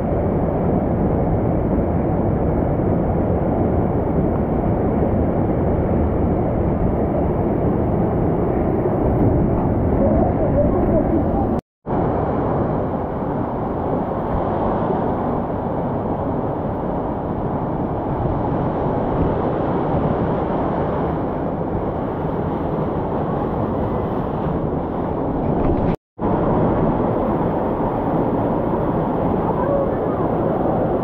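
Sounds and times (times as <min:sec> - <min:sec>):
white water rushing: 0:21.9 - 0:31.0.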